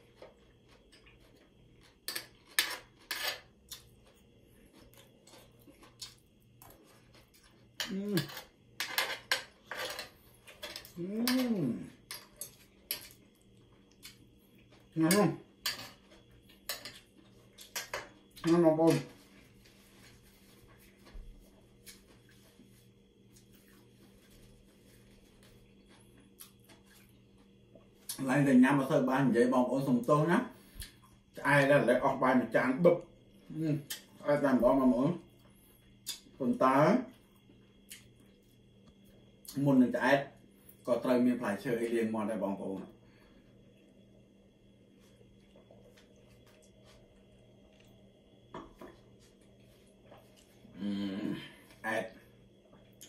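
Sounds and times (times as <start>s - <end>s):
faint steady hum: 0.0s - 53.0s.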